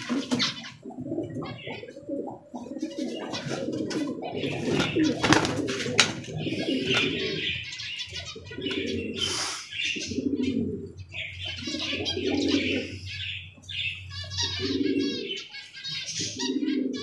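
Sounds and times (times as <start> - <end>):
beaks pecking on concrete: 0.0 - 13.2
pigeons cooing: 0.0 - 17.0.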